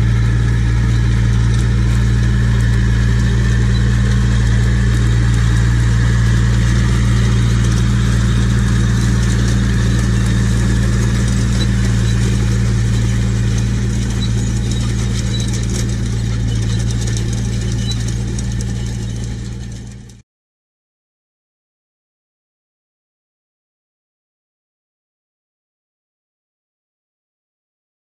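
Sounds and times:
tractor diesel engine running: 0:00.0 - 0:20.2.

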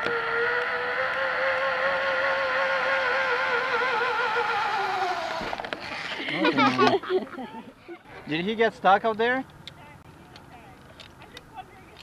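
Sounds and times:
zipline pulley wheels whining: 0:00.0 - 0:07.1.

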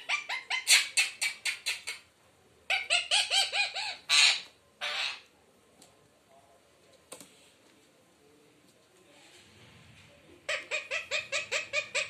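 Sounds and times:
parakeet shrill calls: 0:02.7 - 0:05.2
parakeet screeches: 0:02.7 - 0:05.3.

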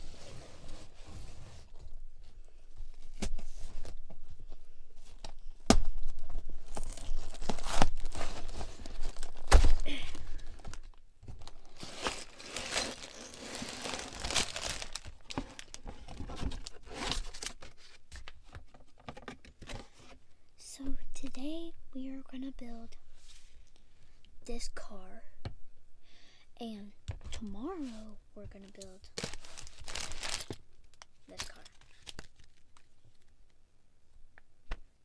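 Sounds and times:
plastic bags crinkling: 0:06.6 - 0:17.7, 0:28.8 - 0:33.3
cardboard box tearing: 0:11.7 - 0:15.0.

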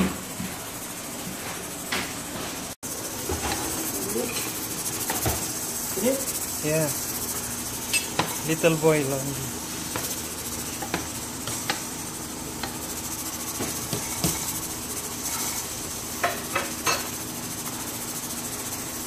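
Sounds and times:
steady high hiss: 0:02.8 - 0:19.0
wooden spatula knocking on pot: 0:13.6 - 0:14.5.

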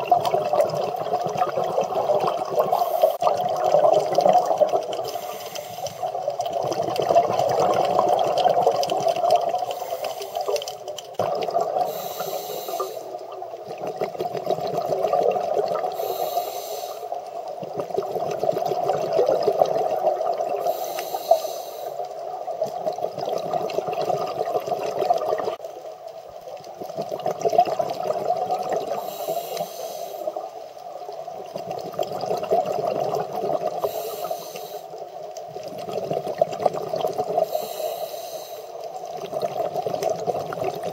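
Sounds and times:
exhaled bubbles gurgling underwater: 0:00.0 - 0:40.9
regulator inhalation hiss: 0:02.7 - 0:03.2, 0:05.0 - 0:06.2, 0:09.7 - 0:10.7, 0:11.8 - 0:13.4, 0:15.9 - 0:17.3, 0:20.6 - 0:22.2, 0:29.0 - 0:30.4, 0:33.8 - 0:35.0, 0:37.4 - 0:38.9.

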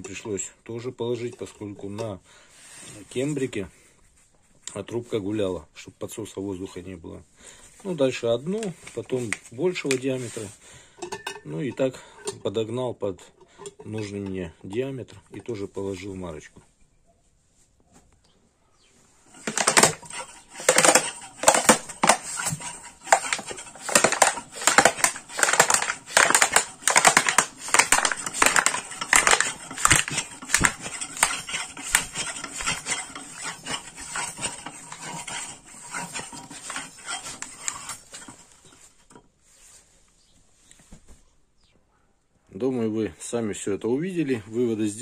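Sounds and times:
plastic bottle crackling and popping: 0:08.6 - 0:10.2, 0:19.3 - 0:35.4.

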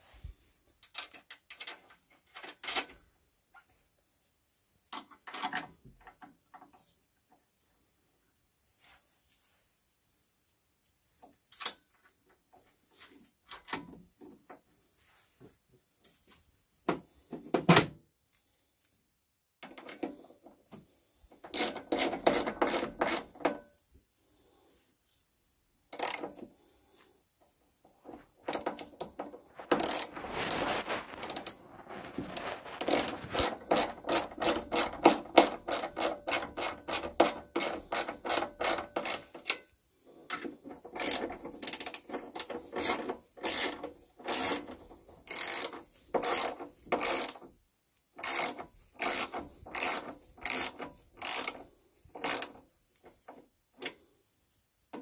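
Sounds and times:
ratchet wrench clicking: 0:21.5 - 0:23.2, 0:25.9 - 0:26.3, 0:41.0 - 0:47.4, 0:48.2 - 0:51.6, 0:52.2 - 0:52.6.

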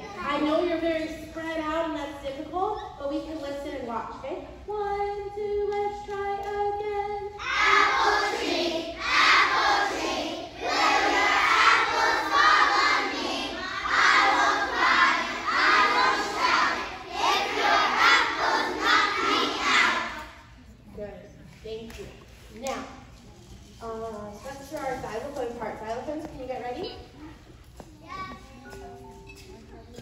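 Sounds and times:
young children singing: 0:04.8 - 0:20.6.

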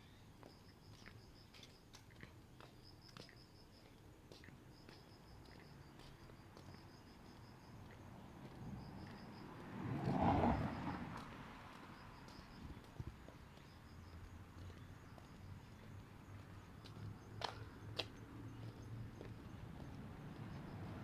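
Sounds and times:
insects chirping: 0:00.1 - 0:21.0
vehicle passing: 0:06.8 - 0:21.0.

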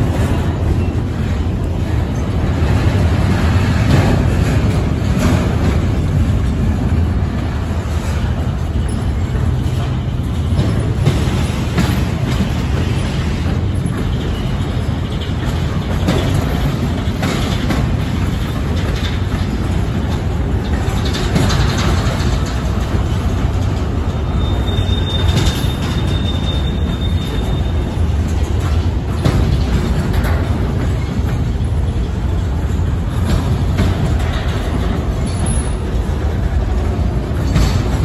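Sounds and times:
freight train rumbling past: 0:00.0 - 0:38.0
train cars clanking: 0:00.0 - 0:38.0
faint high wheel squeal: 0:24.1 - 0:28.2.

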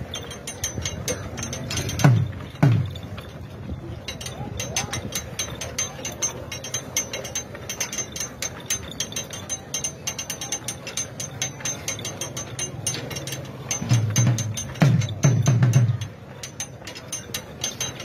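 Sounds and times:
crowd murmur: 0:00.0 - 0:18.0
metallic clicking and jingling: 0:00.0 - 0:18.0.

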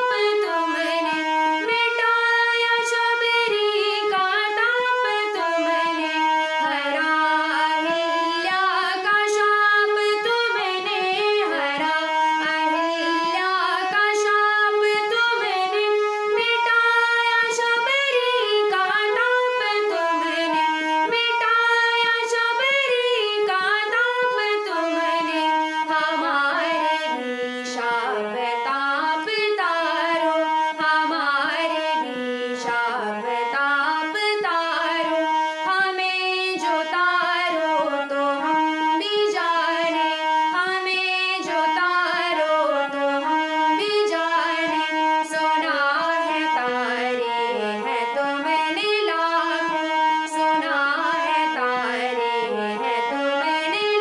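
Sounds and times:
harmonium: 0:00.0 - 0:54.0
woman singing: 0:00.0 - 0:54.0.

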